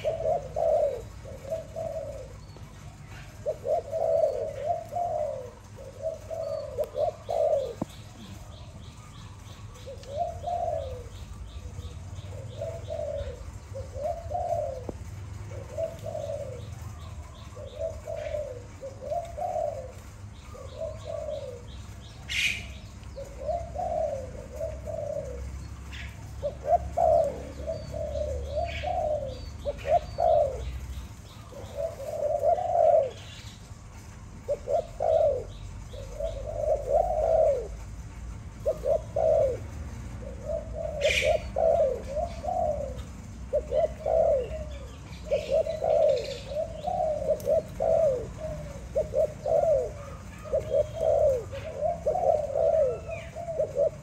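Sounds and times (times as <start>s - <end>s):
dove cooing: 0.0s - 54.0s.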